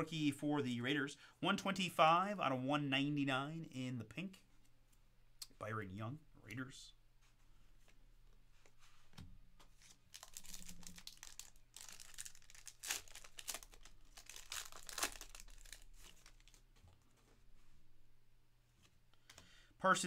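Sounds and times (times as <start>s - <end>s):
foil wrapper tearing and crinkling: 10.1s - 16.6s.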